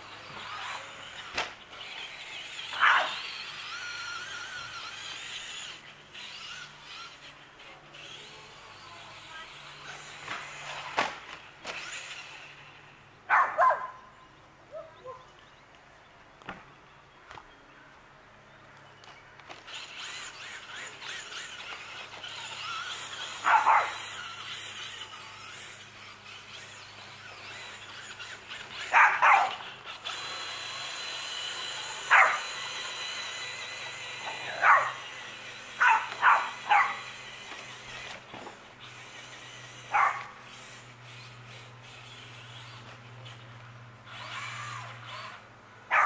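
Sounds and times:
electric motor whining: 0.0 - 13.0, 19.5 - 46.0
small dog barking: 13.3 - 14.0, 23.4 - 24.0, 28.9 - 29.6, 32.1 - 32.5, 34.6 - 35.0, 35.8 - 37.0, 39.9 - 40.3.

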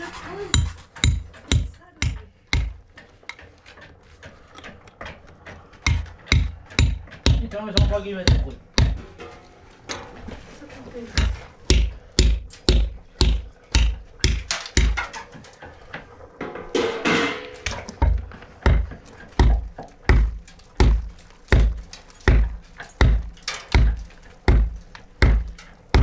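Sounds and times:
hammer striking a chisel: 0.5 - 3.5, 5.4 - 9.4, 11.2 - 15.2, 17.6 - 26.0
tool hacking at a wall: 0.5 - 3.5, 4.6 - 9.3, 11.1 - 15.4, 17.6 - 26.0.

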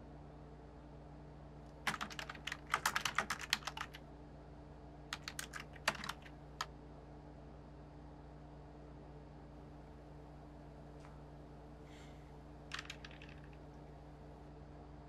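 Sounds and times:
computer keyboard typing: 1.8 - 4.0, 5.1 - 6.7, 12.7 - 13.6.

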